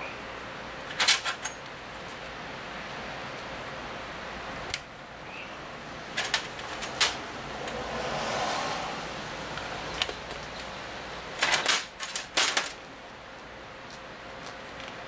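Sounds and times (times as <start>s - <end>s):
steel bolts clinking on metal: 0.9s - 1.7s, 6.1s - 7.2s, 11.4s - 12.8s.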